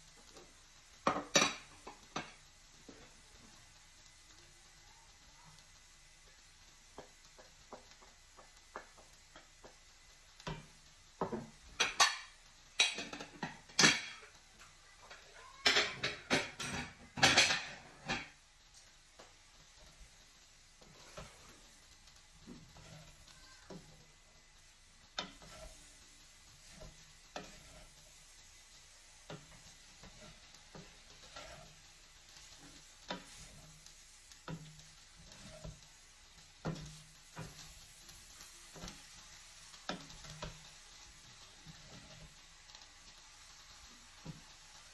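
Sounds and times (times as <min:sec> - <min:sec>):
wooden spoon scraping a pot: 0:20.8 - 0:24.2, 0:25.1 - 0:42.5.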